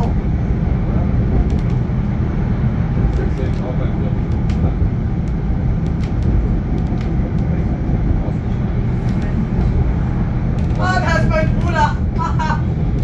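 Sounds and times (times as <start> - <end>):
tram running low rumble: 0.0 - 13.0
light clicks and rattles: 1.4 - 1.9, 3.0 - 7.7, 10.5 - 11.9.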